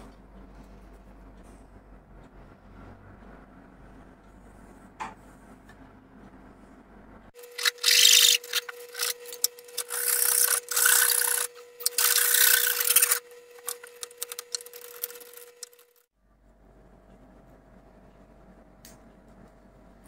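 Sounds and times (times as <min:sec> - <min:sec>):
hand saw cutting wood: 0:07.4 - 0:15.9.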